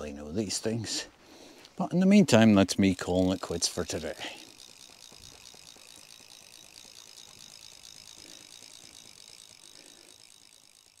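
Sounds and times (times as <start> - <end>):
fishing reel ratchet buzzing: 2.3 - 11.0.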